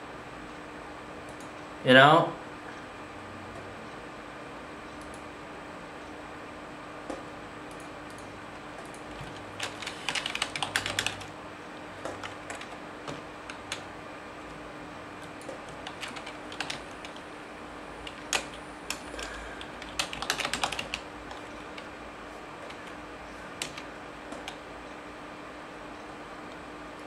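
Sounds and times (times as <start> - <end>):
faint steady hum: 0.0 - 27.0
typing on computer keyboard: 8.8 - 11.3, 12.0 - 13.8, 15.4 - 17.2, 18.0 - 21.9, 23.6 - 24.6.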